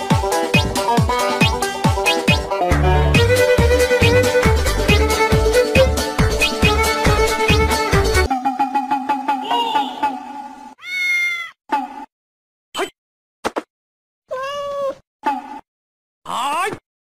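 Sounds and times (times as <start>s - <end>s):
cat meowing: 10.8s - 11.6s, 14.3s - 15.0s.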